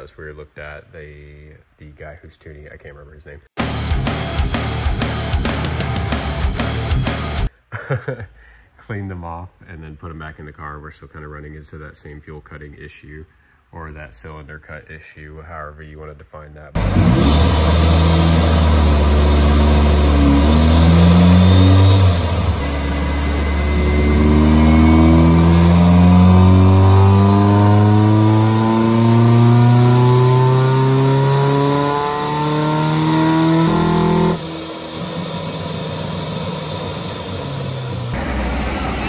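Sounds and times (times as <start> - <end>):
car engine revving under load: 16.8 - 39.0
supercharger high whine: 16.8 - 39.0.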